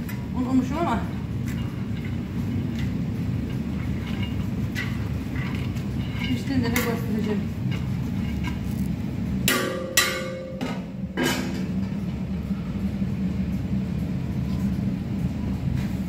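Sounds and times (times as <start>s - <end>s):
steady low rumble: 0.0s - 16.0s
metal ladle clanking on steel pot: 1.3s - 8.7s, 9.4s - 11.7s.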